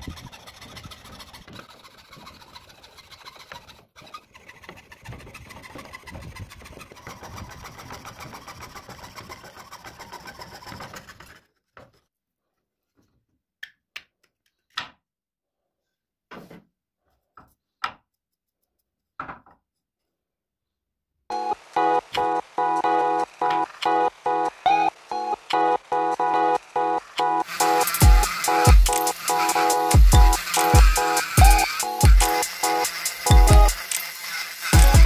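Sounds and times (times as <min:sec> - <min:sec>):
saw cutting wood: 0:00.0 - 0:12.0, 0:21.3 - 0:35.0
wood knocks and taps: 0:19.2 - 0:19.6.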